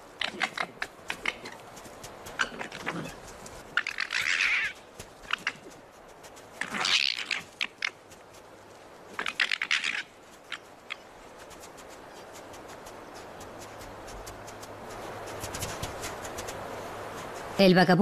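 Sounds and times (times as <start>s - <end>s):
foxes chattering: 0.0s - 5.8s, 9.1s - 11.2s
soft hiss: 0.0s - 18.0s.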